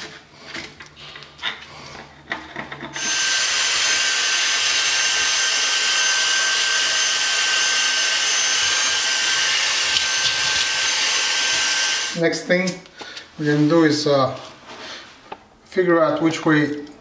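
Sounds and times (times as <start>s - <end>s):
stick vacuum motor whine: 3.0s - 12.2s.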